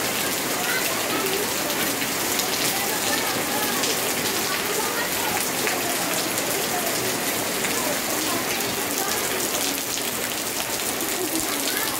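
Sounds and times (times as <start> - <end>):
rain on wet paving stones: 0.0 - 11.9.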